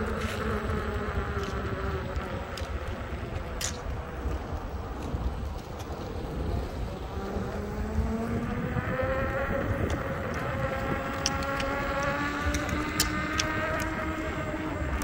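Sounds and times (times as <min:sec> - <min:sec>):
wind rumble on microphone: 0:00.0 - 0:15.0
electric motor whining: 0:06.2 - 0:15.0.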